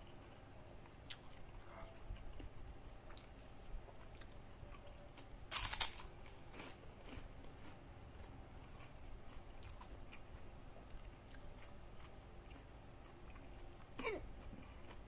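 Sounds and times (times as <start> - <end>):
quiet chewing: 0.0 - 15.0
cracker crunching: 3.1 - 15.0.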